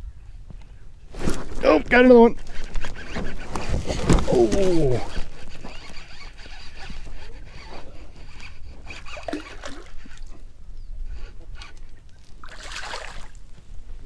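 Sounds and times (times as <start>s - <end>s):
loud rustle: 1.1s - 9.7s
sleeve rubbing against camera: 1.1s - 10.3s.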